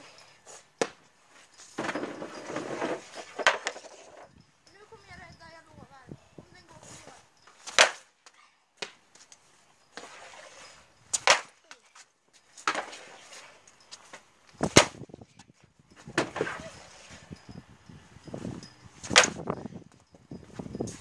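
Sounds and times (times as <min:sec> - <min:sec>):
stick scraping over gravel: 0:01.4 - 0:04.3.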